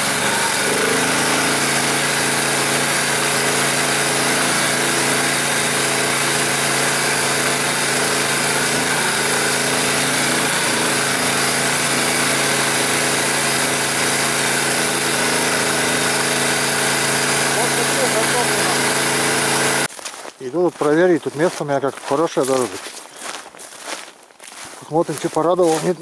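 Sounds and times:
vehicle engine running: 0.0s - 19.9s.

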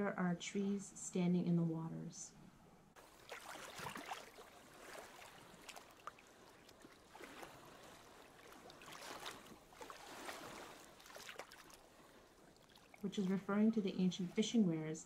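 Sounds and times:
faint moving water: 1.7s - 15.0s
soft splashes: 3.0s - 13.6s.

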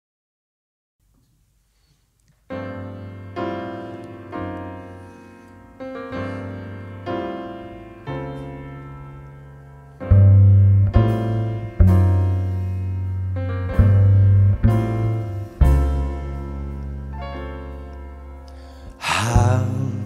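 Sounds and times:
slow piano chords: 2.3s - 20.0s
low bass notes: 7.2s - 20.0s.

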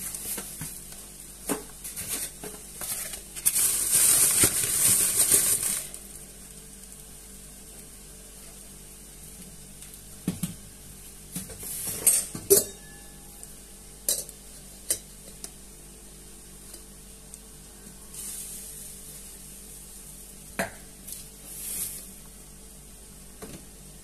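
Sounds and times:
faint steady hum: 0.0s - 24.0s
dishes and utensils clinking: 11.8s - 13.4s.

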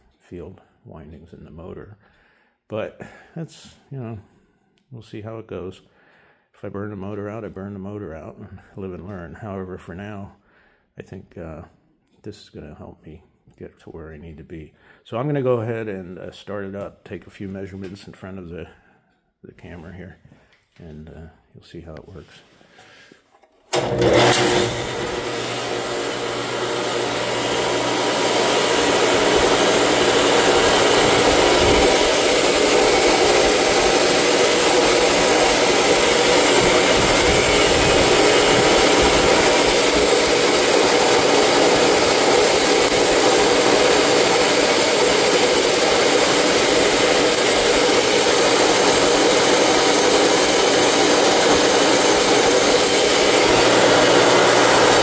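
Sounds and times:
saw motor spinning up and humming: 23.7s - 55.0s.

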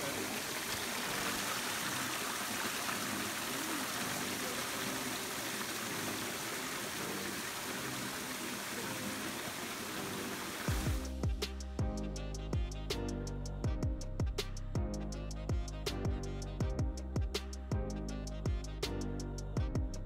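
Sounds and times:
waterfall rushing over rocks: 0.0s - 11.1s.

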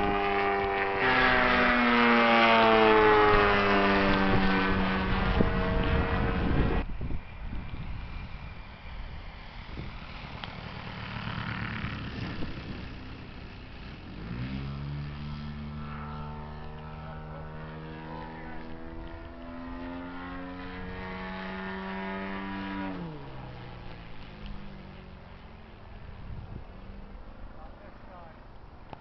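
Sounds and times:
model plane engine drone: 0.0s - 29.0s
wind noise on microphone: 3.0s - 16.0s, 26.0s - 27.6s.

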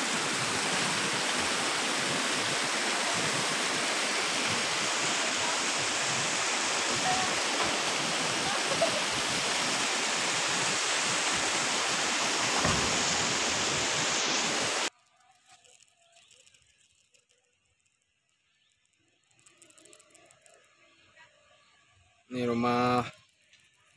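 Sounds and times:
river water flowing: 0.0s - 14.9s.

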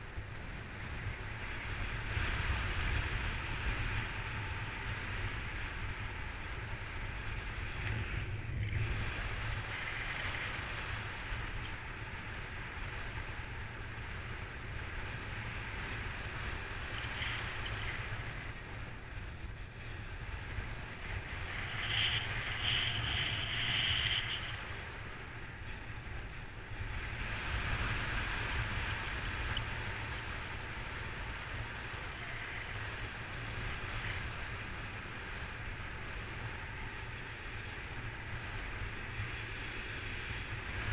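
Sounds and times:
wind rushing over microphone: 0.0s - 40.9s.

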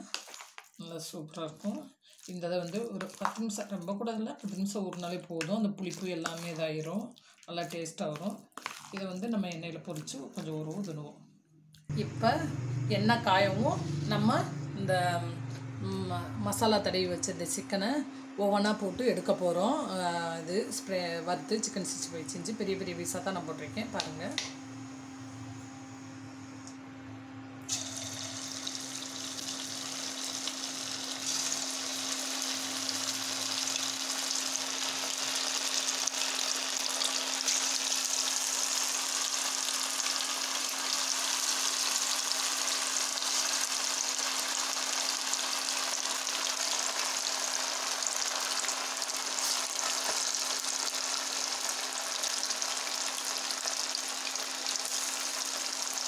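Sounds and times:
chicken sizzling in hot oil: 0.0s - 6.7s, 27.7s - 56.0s.

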